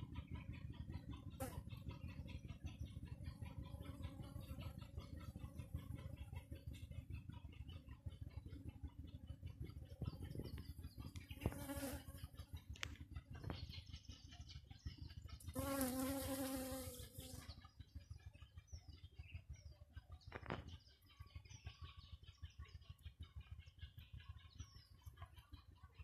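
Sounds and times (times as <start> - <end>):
faint bird chirps: 0.0 - 26.0
honeybee buzzing: 11.5 - 12.1, 15.6 - 17.4.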